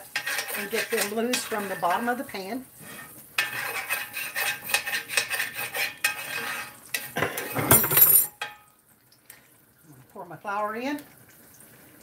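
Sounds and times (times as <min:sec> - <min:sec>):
metal spoon scraping a skillet: 0:00.0 - 0:08.7.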